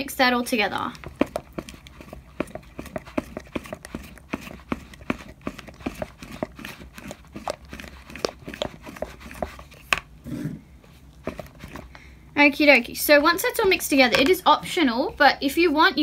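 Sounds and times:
spoon stirring slime: 0:00.0 - 0:10.2, 0:11.0 - 0:11.9.

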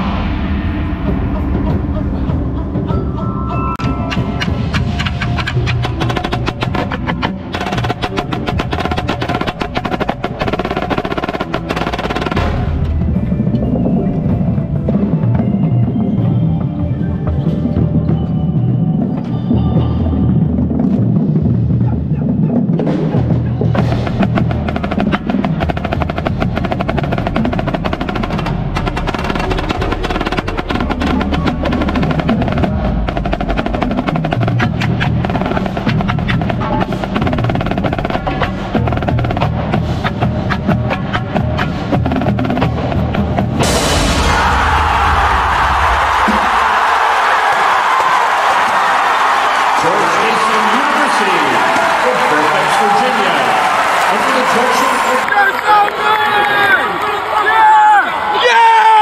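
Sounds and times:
lower drums: 0:00.0 - 0:49.8
marching snare drum: 0:04.1 - 0:13.0, 0:22.8 - 0:44.3.

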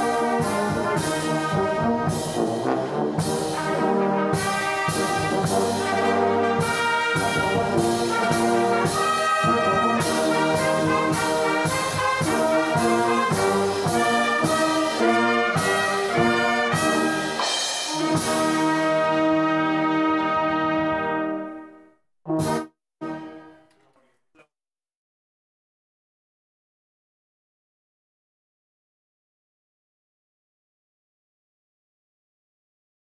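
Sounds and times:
brass band playing a hymn: 0:00.0 - 0:23.6.

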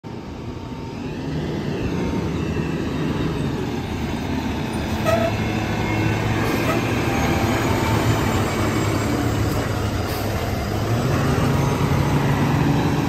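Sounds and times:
garbage truck diesel engine: 0:00.1 - 0:13.0
short high squeal: 0:04.9 - 0:07.6.

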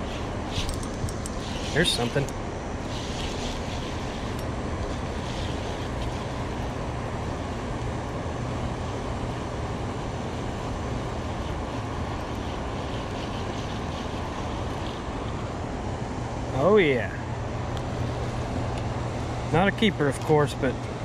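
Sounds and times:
fishing reel whirring: 0:00.0 - 0:06.8, 0:11.2 - 0:15.4
river water rushing: 0:00.0 - 0:21.0.

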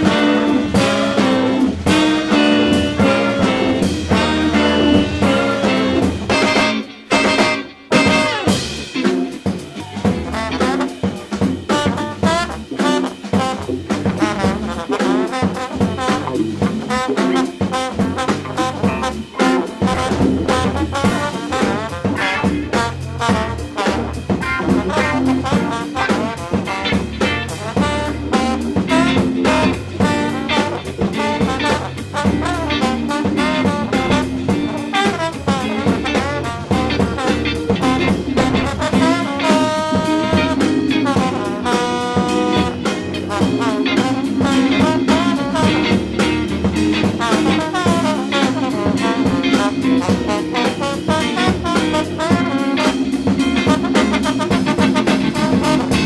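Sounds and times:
steady drum beat: 0:00.0 - 0:56.0
upbeat jazz with brass horns: 0:00.0 - 0:56.0.

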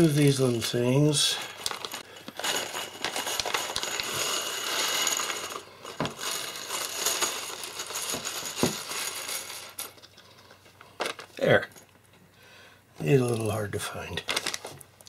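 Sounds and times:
plastic zip bag crinkling: 0:01.5 - 0:10.0, 0:14.2 - 0:14.8
plastic parts clattering onto desk: 0:01.6 - 0:10.1.

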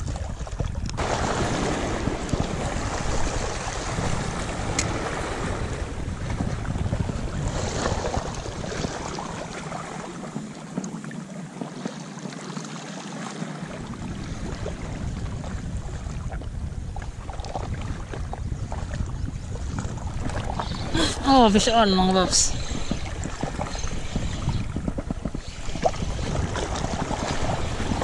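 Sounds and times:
wind buffeting microphone: 0:00.0 - 0:12.4, 0:13.2 - 0:28.0
waves splashing over rocks: 0:00.9 - 0:15.4, 0:20.2 - 0:28.0.

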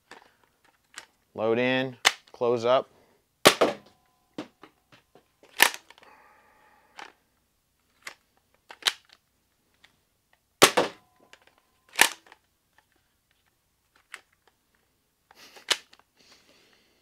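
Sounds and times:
plastic handling clicks: 0:07.9 - 0:10.4, 0:11.2 - 0:14.6, 0:15.6 - 0:16.1.

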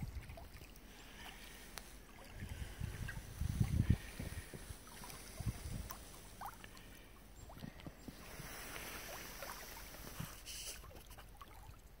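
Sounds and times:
brief hiss: 0:08.2 - 0:10.9.

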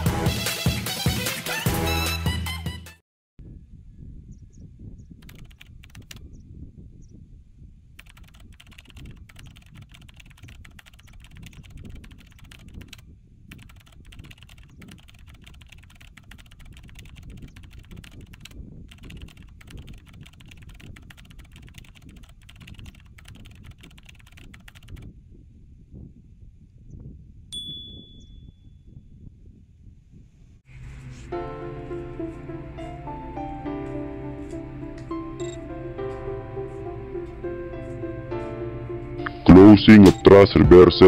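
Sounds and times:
rapid keyboard typing: 0:05.2 - 0:06.2, 0:08.0 - 0:25.0.

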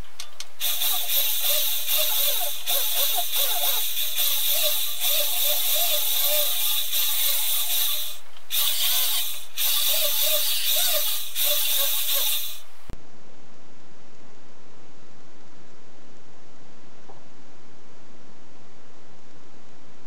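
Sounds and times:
rotary tool grinding metal: 0:00.6 - 0:12.7.

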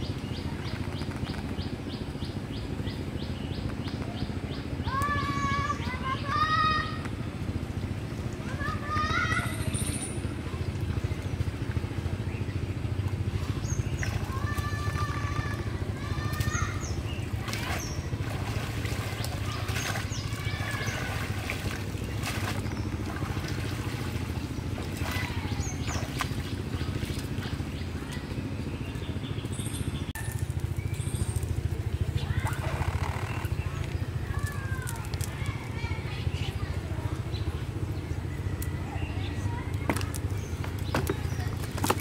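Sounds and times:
bird calls: 0:00.0 - 0:42.0
steady low rumble: 0:00.0 - 0:42.0
water sloshing and dripping: 0:10.3 - 0:28.9, 0:30.2 - 0:37.9, 0:39.3 - 0:42.0.

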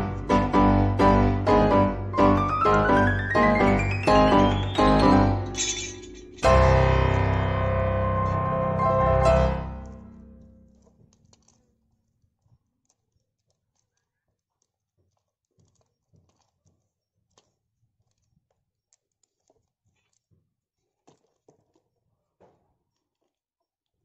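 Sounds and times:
saw chain links clicking: 0:05.5 - 0:06.5.

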